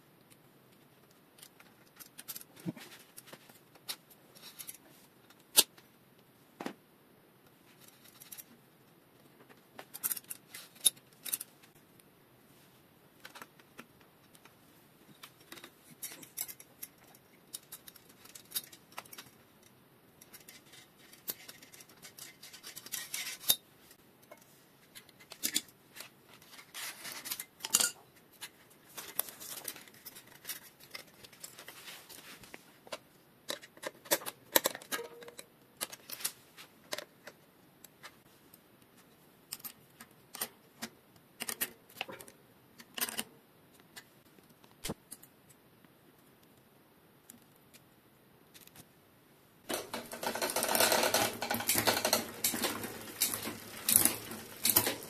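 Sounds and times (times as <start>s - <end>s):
bike chain clattering over gears: 49.7s - 55.0s.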